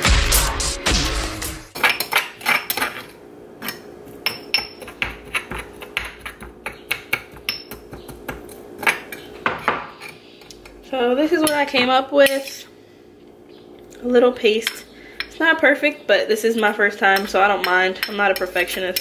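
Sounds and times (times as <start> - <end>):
metal spoon scraping stone mortar: 17.2 - 19.0.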